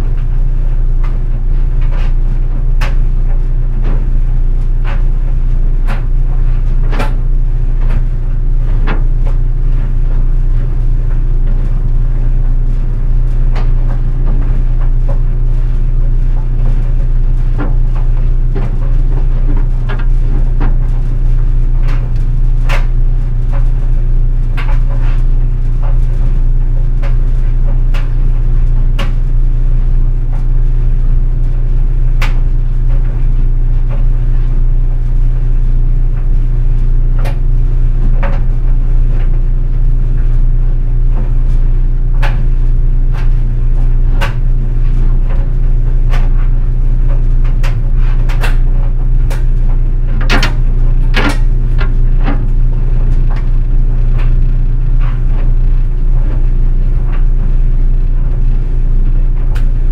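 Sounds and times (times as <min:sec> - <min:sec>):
clothes dryer humming: 0:00.0 - 0:59.9
buttons clicking against dryer drum: 0:50.2 - 0:51.5.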